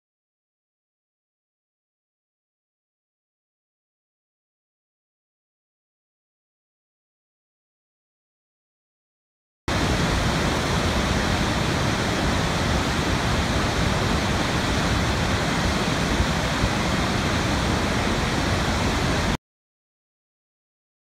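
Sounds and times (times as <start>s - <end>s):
waterfall rushing: 9.7s - 19.4s.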